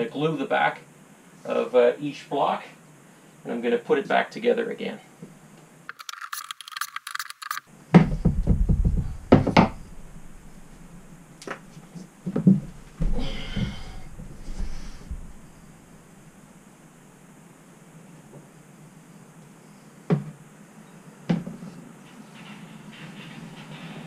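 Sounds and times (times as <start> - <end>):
short scratchy noise: 5.9 - 7.7
rustling: 5.9 - 16.5
wooden knocks and clunks: 7.9 - 15.6.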